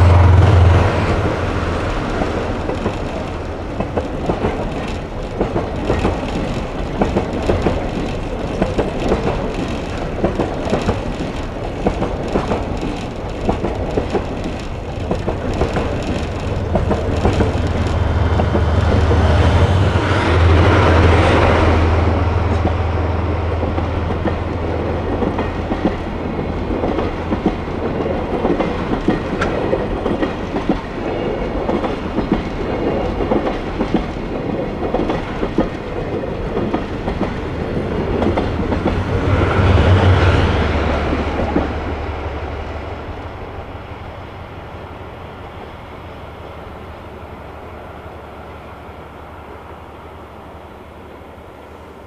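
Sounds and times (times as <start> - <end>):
train wheels clicking over rail joints: 0.0 - 22.8, 23.6 - 42.2
diesel train passing: 0.0 - 52.0.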